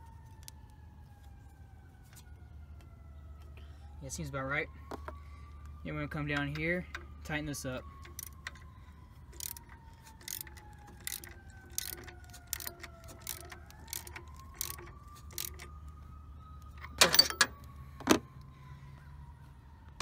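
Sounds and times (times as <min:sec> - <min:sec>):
ratchet wrench clicking: 0:09.3 - 0:15.7.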